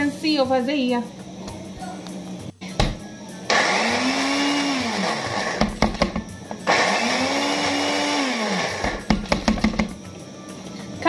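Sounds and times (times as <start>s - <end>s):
blender motor grinding: 3.5s - 9.1s.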